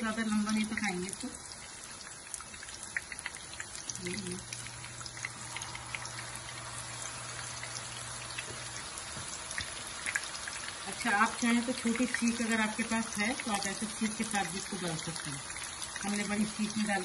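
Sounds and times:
meat sizzling in hot oil: 0.0 - 17.0
oil crackles and pops: 0.2 - 17.0.

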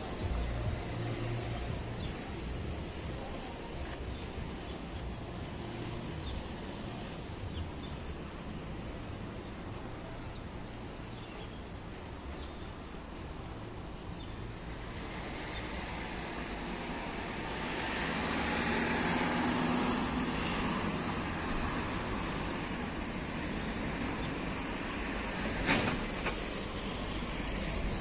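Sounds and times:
street traffic: 0.0 - 28.0
vehicle passing: 17.3 - 22.7.

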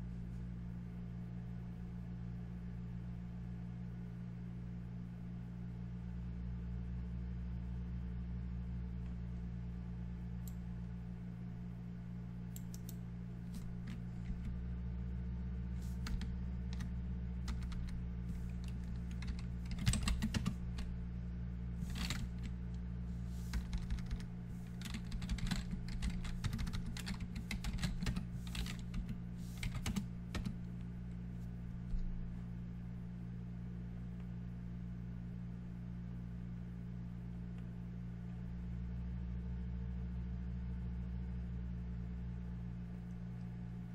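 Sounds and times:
low hum: 0.0 - 43.9
typing on keyboard: 13.6 - 14.5, 16.0 - 16.9, 17.5 - 20.9, 21.9 - 22.5, 23.5 - 30.6.

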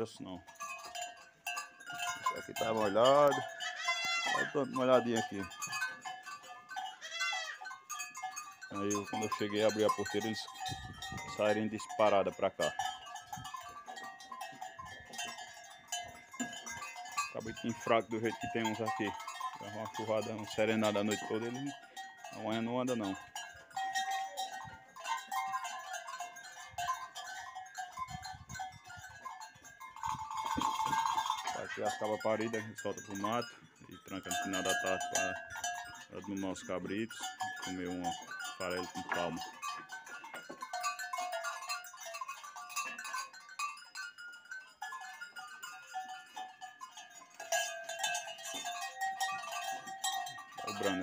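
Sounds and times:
young goats bleating: 3.4 - 4.6, 6.8 - 7.8.

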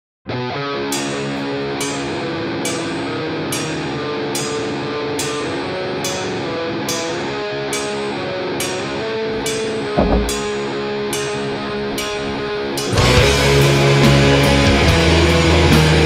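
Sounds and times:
held guitar chords: 0.3 - 16.0
steady drum beat: 10.0 - 10.6
rock music: 12.5 - 16.0.

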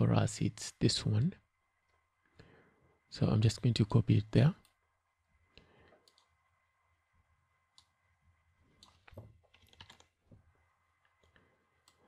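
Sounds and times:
faint keyboard clicks: 5.9 - 6.3, 8.8 - 10.2.

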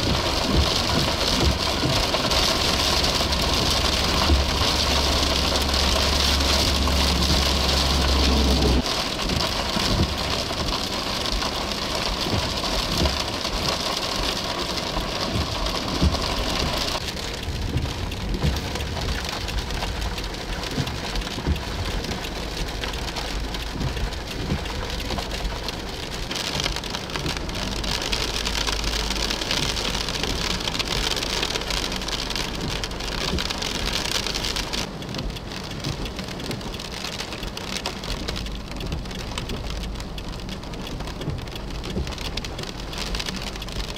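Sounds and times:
low rumble: 0.0 - 26.3
steady rain falling: 0.0 - 43.9.

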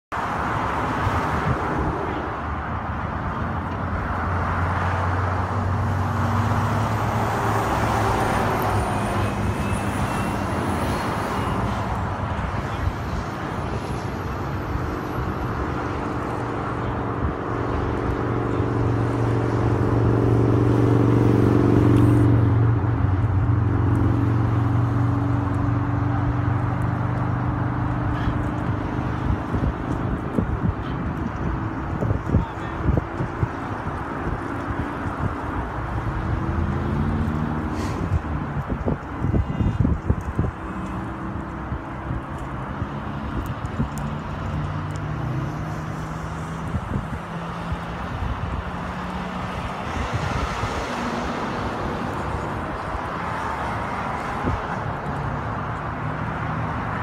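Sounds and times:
highway traffic: 0.1 - 57.0
vehicle engine humming: 0.1 - 57.0.

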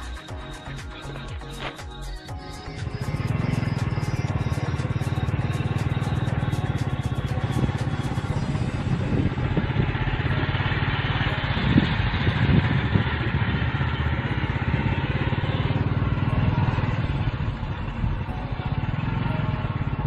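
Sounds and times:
motorcycle engine running: 0.0 - 20.0
wind noise: 7.4 - 10.5, 11.3 - 15.2.

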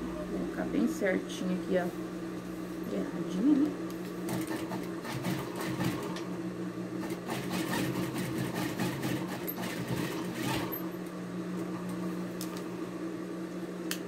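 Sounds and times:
sewing machine motor hum: 3.3 - 6.4, 7.0 - 12.0.

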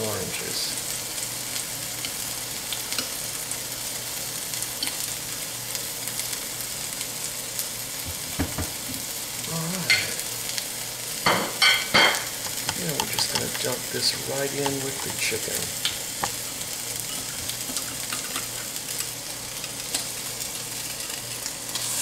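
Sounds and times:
chicken sizzling in oil: 0.0 - 22.0.

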